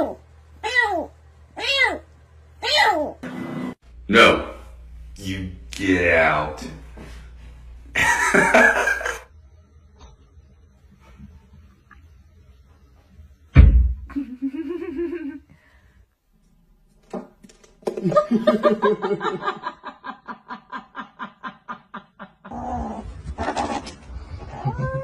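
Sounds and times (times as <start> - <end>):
person laughing: 8.0 - 9.3, 14.1 - 15.4
sharp thump: 13.6 - 14.0.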